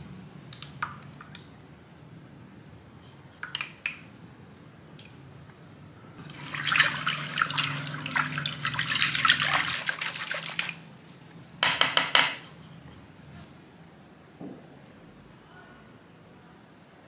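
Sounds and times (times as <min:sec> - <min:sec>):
wire whisk beating liquid in bowl: 0:06.2 - 0:10.8.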